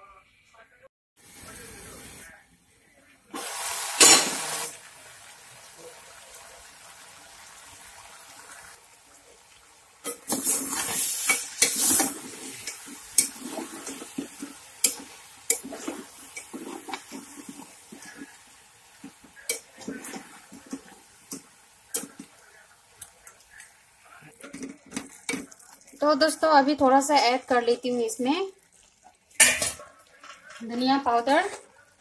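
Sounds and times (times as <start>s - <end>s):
faint steady hiss: 0.0s - 26.2s
spoon clinking and scraping pot: 10.0s - 18.4s, 19.0s - 22.4s, 29.4s - 30.8s
metal spoon stirring in a pot: 10.0s - 26.5s, 28.6s - 31.9s.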